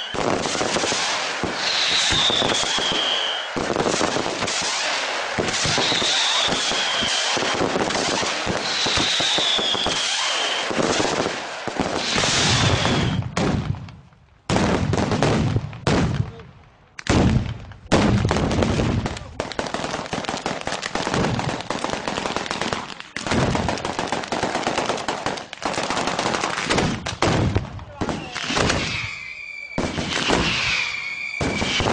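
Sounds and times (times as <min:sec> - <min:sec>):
high falling firework whistle: 0:00.0 - 0:03.6, 0:04.4 - 0:11.0, 0:11.9 - 0:13.4, 0:28.3 - 0:31.9
firecrackers banging and crackling: 0:00.0 - 0:31.9.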